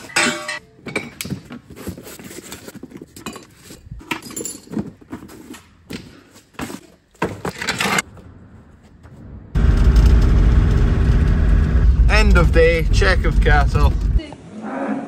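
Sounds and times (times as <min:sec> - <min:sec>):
metal tools clinking together: 0:00.0 - 0:01.2, 0:03.2 - 0:04.9.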